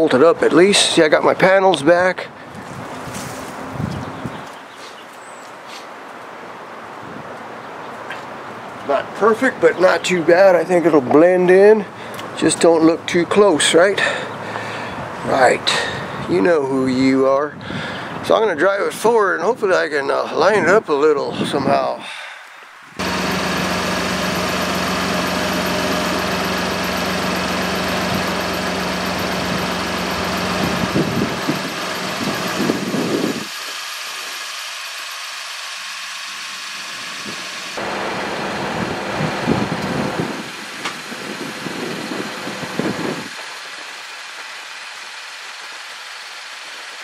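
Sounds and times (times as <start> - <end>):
pickup truck engine idling: 23.0 - 43.5.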